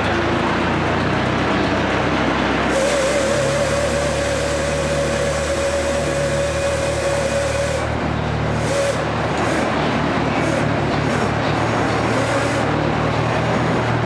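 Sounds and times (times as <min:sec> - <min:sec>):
hoist machine drone with whine: 0:00.0 - 0:14.0.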